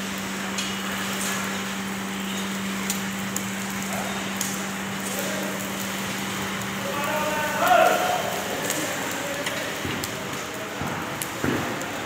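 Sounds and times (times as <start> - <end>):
furnace hum: 0.0 - 12.0
sharp crackles and pops: 0.0 - 12.0.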